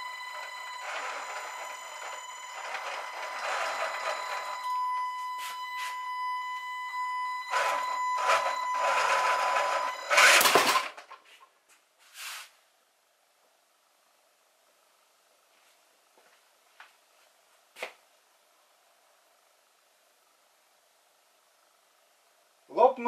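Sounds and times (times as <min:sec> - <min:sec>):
electric motor whine: 0:00.0 - 0:10.8.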